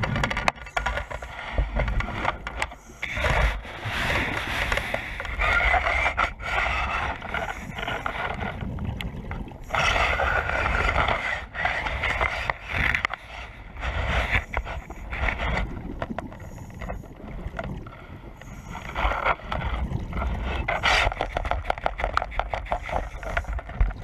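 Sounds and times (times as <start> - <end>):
muffled underwater rushing and scraping: 0.0 - 24.0.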